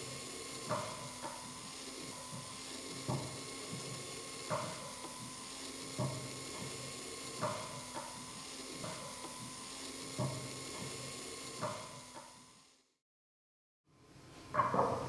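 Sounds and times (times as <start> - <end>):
motor hum: 0.0 - 12.9.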